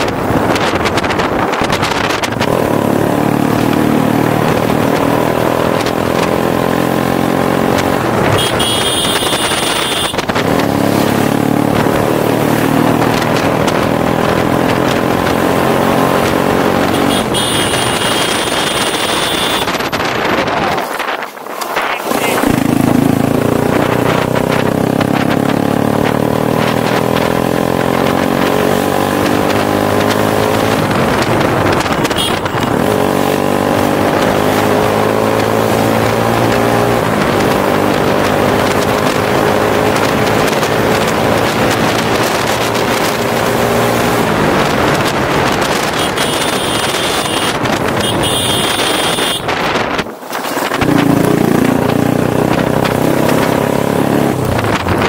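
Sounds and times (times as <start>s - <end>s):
motorcycle engine running: 0.0s - 20.9s, 22.1s - 55.0s.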